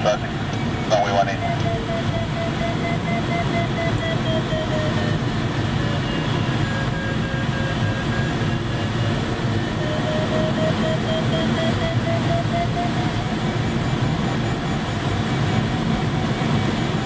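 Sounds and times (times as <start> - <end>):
air rushing in cockpit: 0.0 - 17.0
variometer beeping: 0.0 - 17.0.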